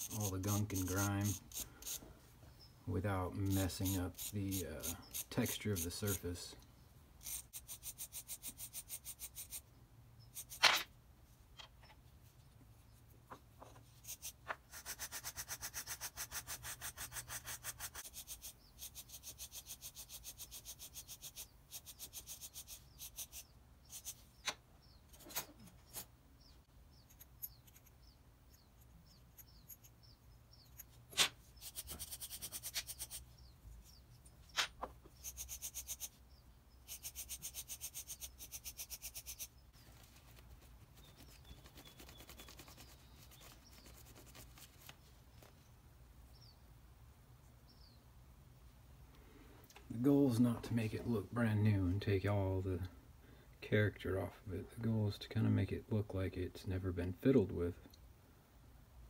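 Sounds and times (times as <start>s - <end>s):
wire brush scrubbing metal: 0.0s - 2.0s, 3.3s - 6.5s, 14.0s - 24.2s, 31.2s - 33.3s, 35.2s - 36.2s, 36.8s - 39.5s.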